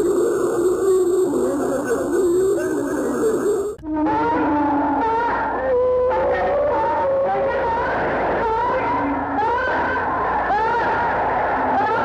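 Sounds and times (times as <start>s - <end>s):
eerie wavering wailing tones: 0.0s - 6.7s.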